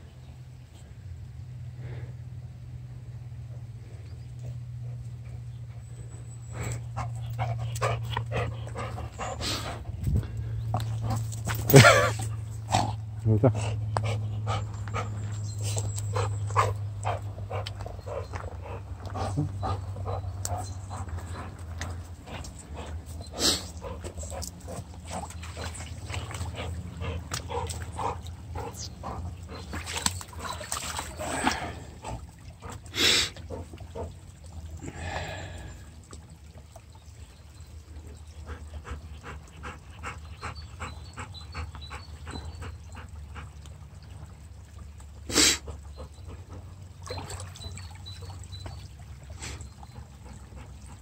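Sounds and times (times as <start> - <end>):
running water trickling: 5.8 - 51.0
dog splashing in water: 14.2 - 34.6, 45.3 - 51.0.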